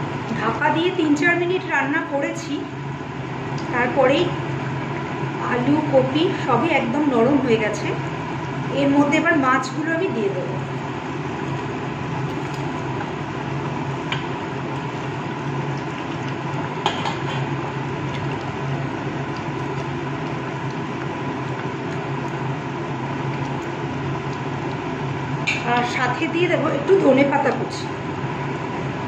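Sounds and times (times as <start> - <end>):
kitchen hum and hiss: 0.0 - 29.0.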